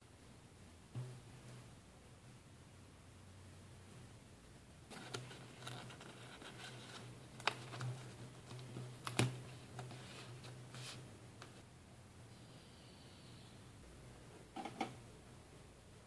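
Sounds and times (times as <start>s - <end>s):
paper crinkling and rustling: 4.9s - 11.0s.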